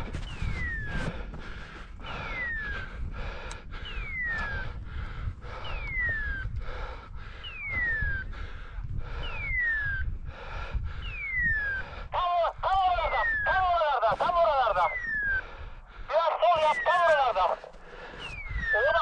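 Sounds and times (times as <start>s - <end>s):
footsteps on dry grass and stones: 0.0s - 2.0s, 16.1s - 19.0s.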